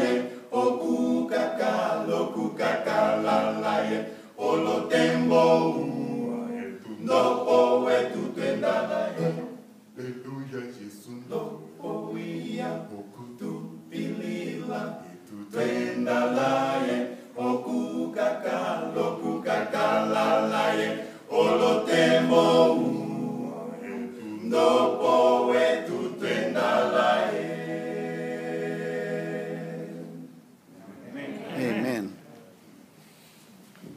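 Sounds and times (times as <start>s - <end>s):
male a cappella group singing: 0.0s - 30.4s.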